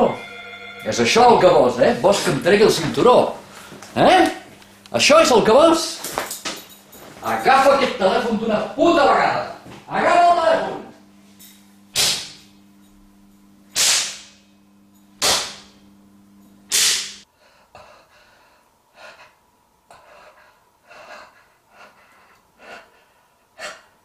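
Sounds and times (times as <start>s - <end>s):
man breathing heavily and gasping: 17.3s - 24.0s.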